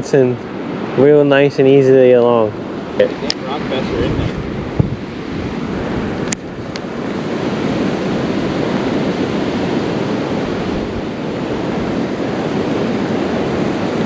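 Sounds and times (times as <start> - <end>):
creek water rushing: 0.0 - 14.0.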